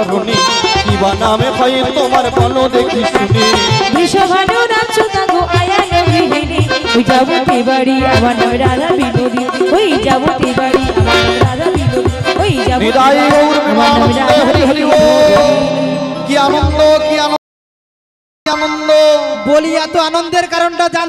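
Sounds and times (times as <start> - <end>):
hand drum rhythm: 0.0 - 17.2
melodic instruments: 12.7 - 17.4, 18.5 - 21.0.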